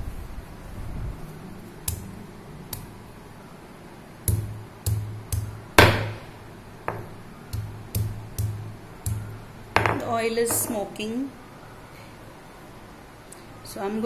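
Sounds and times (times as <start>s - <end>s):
wooden pestle knocking on stone: 4.3s - 6.3s, 6.9s - 10.8s.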